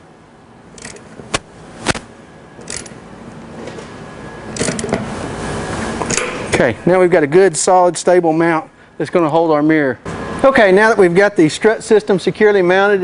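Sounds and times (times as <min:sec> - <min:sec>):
ratchet clicking: 0:00.8 - 0:01.1, 0:02.6 - 0:03.0.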